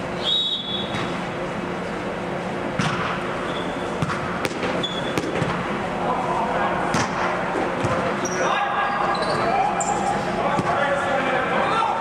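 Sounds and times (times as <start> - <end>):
air blowers humming: 0.0 - 12.0
ball thumping: 2.8 - 3.2, 4.0 - 5.6
sneaker squeaks on wooden court: 3.4 - 4.1, 4.7 - 5.4, 7.8 - 10.0.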